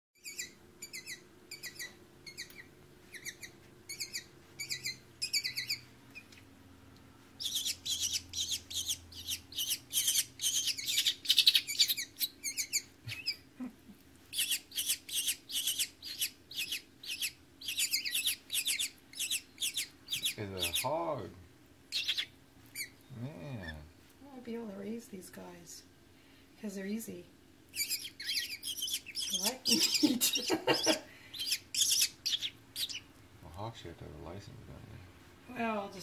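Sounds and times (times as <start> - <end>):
hawk nestlings begging cheeps: 0.2 - 5.8, 7.4 - 13.4, 14.3 - 21.0, 21.9 - 23.0, 27.7 - 33.1.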